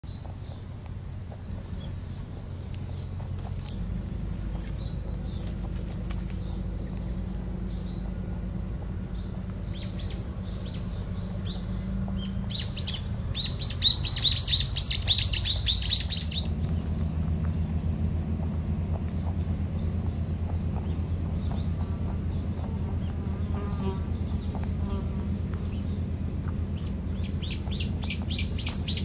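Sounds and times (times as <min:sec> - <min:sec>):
small birds chirping: 0:00.0 - 0:29.0
steady low rumble: 0:00.0 - 0:29.0.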